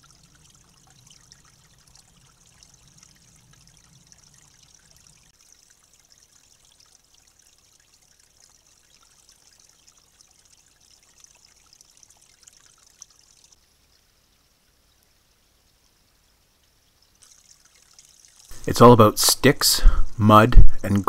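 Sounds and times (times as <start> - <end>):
water trickling: 0.0 - 18.9.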